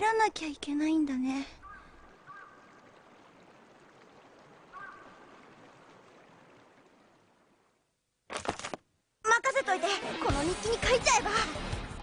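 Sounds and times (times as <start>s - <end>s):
flowing water hiss: 0.4s - 7.8s.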